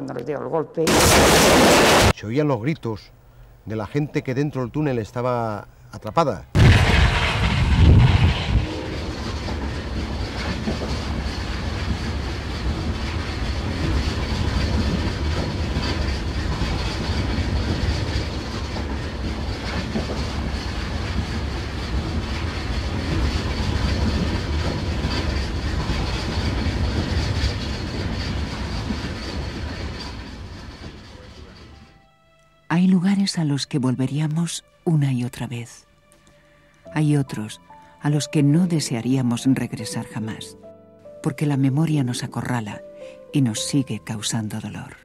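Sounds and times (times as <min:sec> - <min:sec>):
train wheels rumbling on rails: 0:06.6 - 0:32.1
wheels clicking over rail joints: 0:09.3 - 0:32.0.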